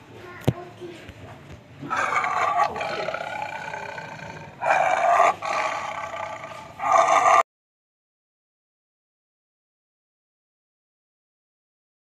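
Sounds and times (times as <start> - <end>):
lion growling: 1.8 - 7.4.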